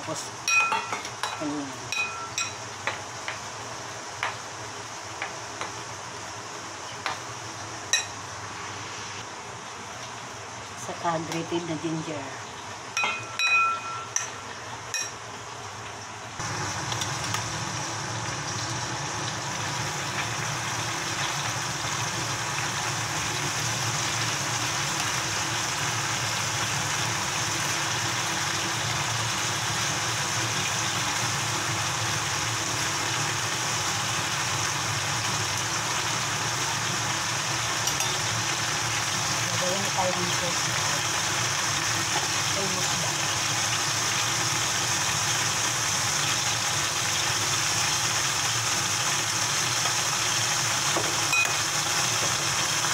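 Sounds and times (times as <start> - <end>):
food sizzling in oil: 0.0 - 52.9
metal bowl ringing when knocked: 0.5 - 2.6, 13.0 - 15.2.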